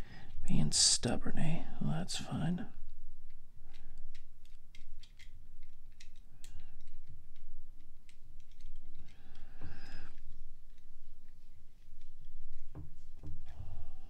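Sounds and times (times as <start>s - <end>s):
plastic parts clicking and tapping: 3.2s - 13.6s.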